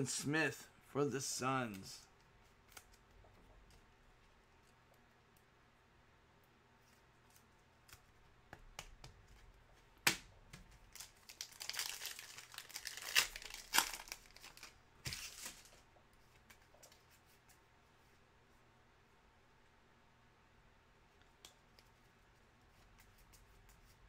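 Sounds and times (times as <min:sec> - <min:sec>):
plastic wrapper crinkling and tearing: 0:10.8 - 0:15.8.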